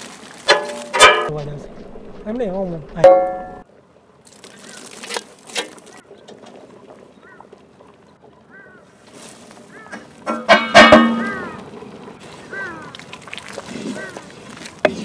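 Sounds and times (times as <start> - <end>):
birds chirping: 1.2 - 5.0, 5.8 - 15.0
sharp knocks: 10.3 - 11.3.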